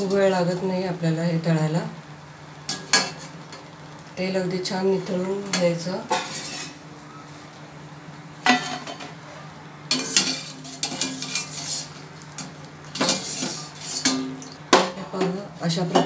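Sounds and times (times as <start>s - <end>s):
skimmer scraping and clinking on pan: 6.1s - 6.8s, 9.9s - 14.6s.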